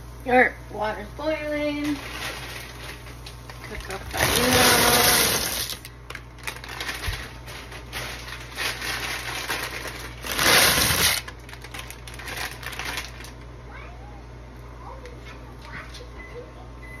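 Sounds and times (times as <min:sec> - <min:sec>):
noodles rustling from bag: 0:01.8 - 0:13.4
falling noodles clicking: 0:02.0 - 0:13.5.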